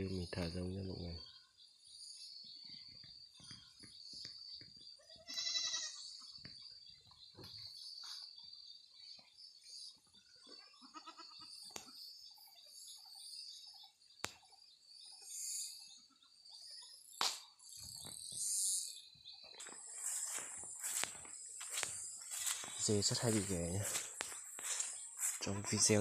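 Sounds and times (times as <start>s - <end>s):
insects trilling: 0.0s - 26.0s
goat bleating: 5.1s - 6.0s, 10.5s - 11.5s, 25.5s - 26.0s.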